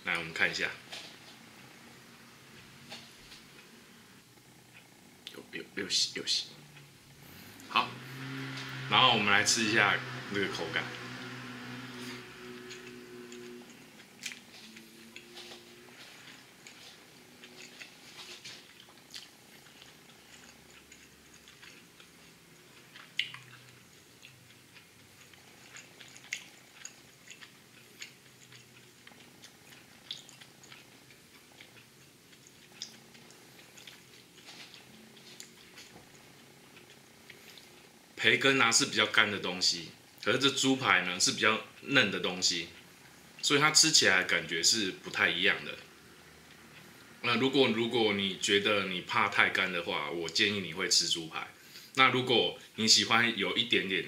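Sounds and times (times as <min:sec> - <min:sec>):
person chewing food: 0:12.0 - 0:37.9
mouth clicks and smacks: 0:22.8 - 0:36.0.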